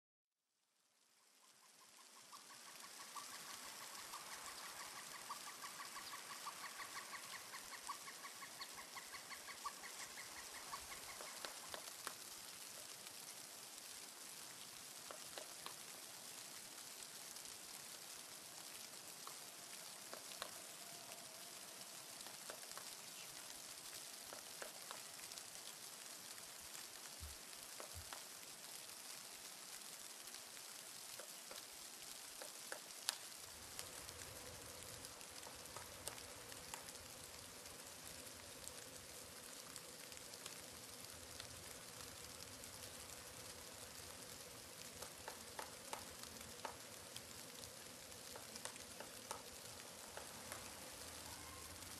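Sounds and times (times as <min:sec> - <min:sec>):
faint hiss: 0:00.5 - 0:51.9
small ticks: 0:01.2 - 0:51.9
woodpecker calling rapid notes: 0:01.9 - 0:12.2.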